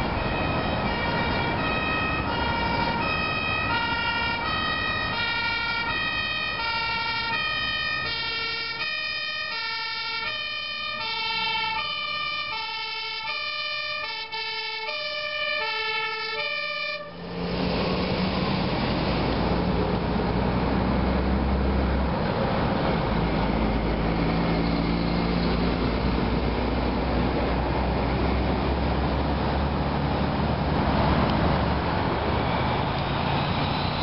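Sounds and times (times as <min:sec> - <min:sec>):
two-tone siren: 0:00.0 - 0:17.4
fire truck passing close: 0:00.0 - 0:34.0
motorway traffic: 0:00.0 - 0:34.0.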